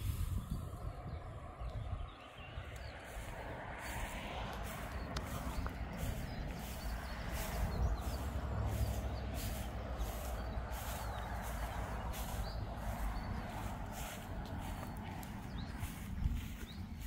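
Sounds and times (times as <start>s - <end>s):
wind rumble on microphone: 0.0s - 17.0s
footsteps walking: 2.9s - 17.0s.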